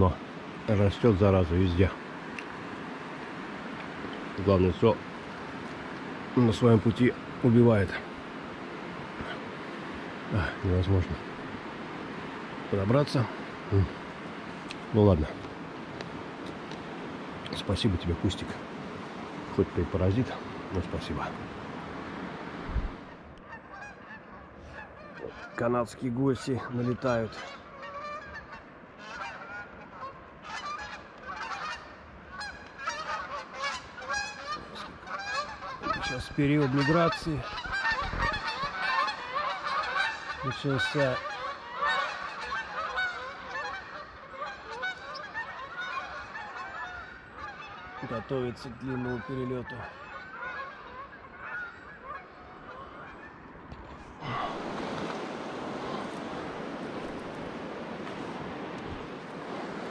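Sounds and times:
river water rushing: 0:00.0 - 0:59.9
geese honking: 0:23.0 - 0:25.8, 0:26.4 - 0:59.9.

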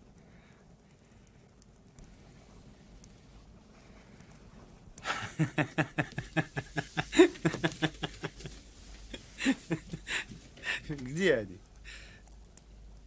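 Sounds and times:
man laughing: 0:05.0 - 0:11.1.

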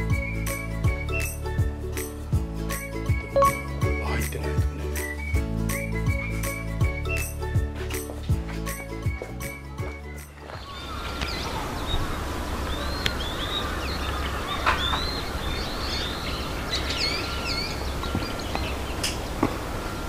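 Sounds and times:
small birds chirping: 0:10.4 - 0:20.0.

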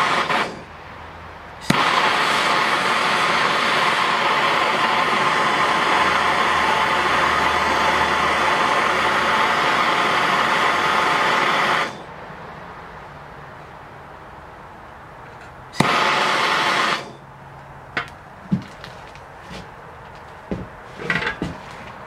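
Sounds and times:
gas torch flame hissing: 0:00.0 - 0:00.7, 0:01.6 - 0:12.2, 0:15.8 - 0:17.2.

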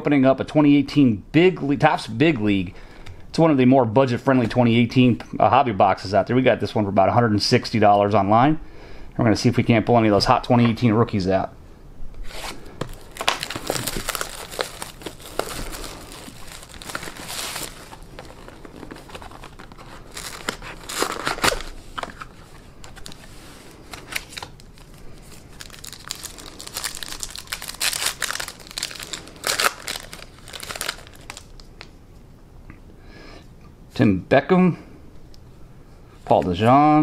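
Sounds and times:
wrappers crinkling and tearing: 0:12.3 - 0:31.9.

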